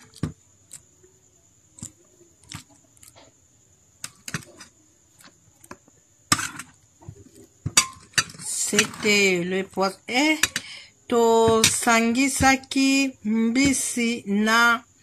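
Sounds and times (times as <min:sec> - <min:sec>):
spoon clicking and scraping a bowl: 0:10.4 - 0:10.7.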